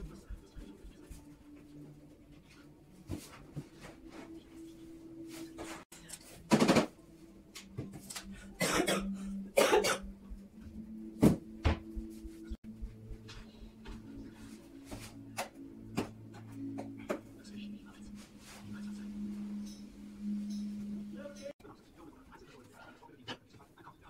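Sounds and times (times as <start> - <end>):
person coughing: 8.6 - 10.1.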